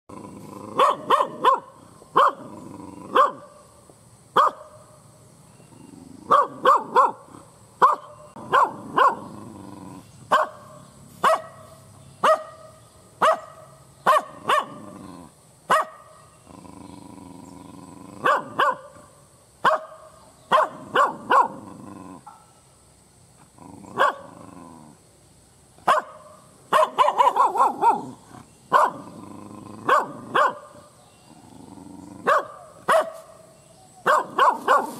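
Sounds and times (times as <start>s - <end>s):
dog barking angrily: 0.5s - 3.6s, 4.4s - 4.8s, 6.2s - 9.4s, 10.3s - 16.2s, 18.2s - 19.0s, 19.6s - 21.8s, 23.8s - 24.4s, 25.8s - 30.8s, 32.2s - 33.4s, 34.0s - 34.9s.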